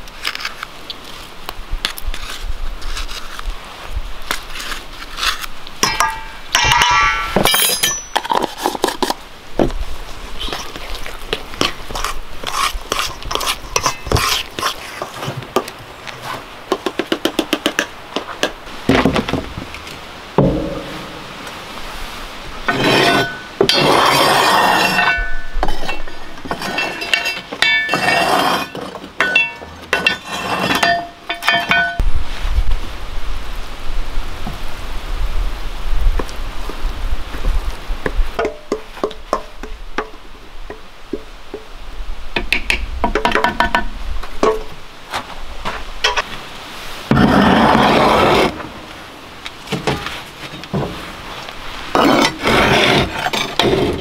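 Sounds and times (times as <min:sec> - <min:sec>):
metal spoon scraping steel bowl: 0:22.7 - 0:31.7.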